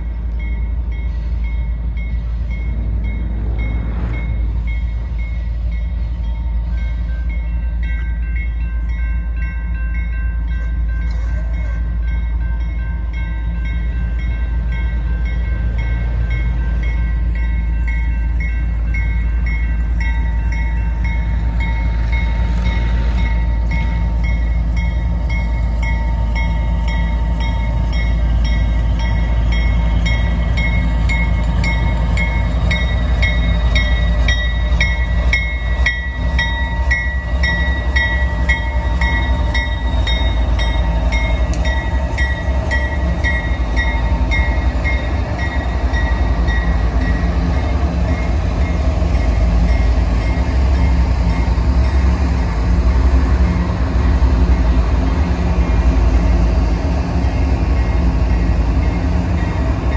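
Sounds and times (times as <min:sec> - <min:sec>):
crossing bells ringing: 0:00.0 - 0:54.8, 0:57.1 - 0:59.9
diesel locomotives rumbling: 0:00.0 - 0:59.9.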